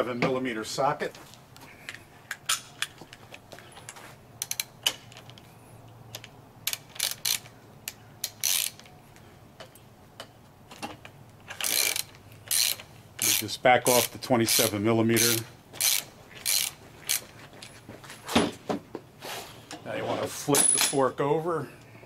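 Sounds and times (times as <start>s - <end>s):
ratchet wrench clicking: 4.4s - 5.4s, 6.1s - 8.9s, 11.5s - 17.3s.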